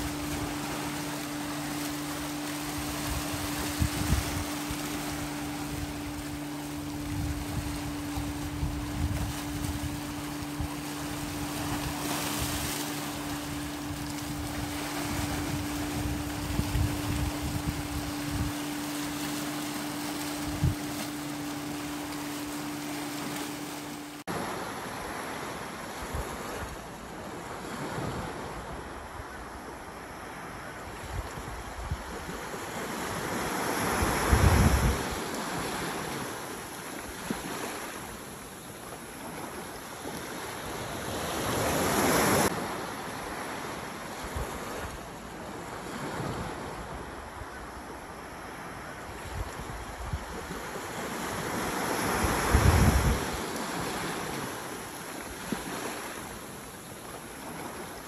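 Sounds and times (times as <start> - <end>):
wind blowing on microphone: 0.0 - 24.2, 33.8 - 35.2, 51.3 - 53.5
boat engine drone: 0.0 - 24.6
rushing water: 0.0 - 26.1
waves against rocks: 0.0 - 29.2, 30.4 - 58.0.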